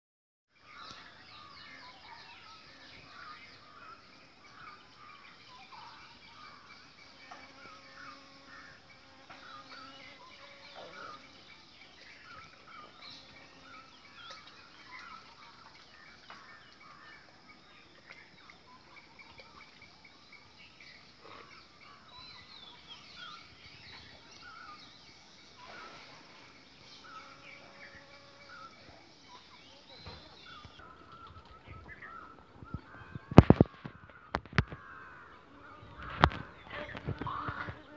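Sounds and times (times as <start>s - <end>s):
birds chirping and calling: 0.6s - 37.9s.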